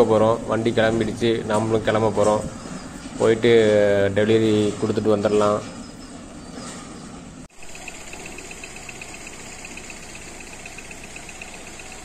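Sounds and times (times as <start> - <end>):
high-pitched pulsing: 7.5 - 12.0
vehicle engine running: 7.6 - 12.0.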